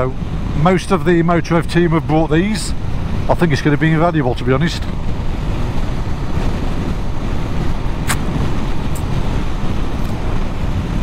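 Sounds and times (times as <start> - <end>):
motorcycle riding: 1.4 - 11.0
wind rushing: 2.3 - 11.0
sharp click: 8.0 - 8.3.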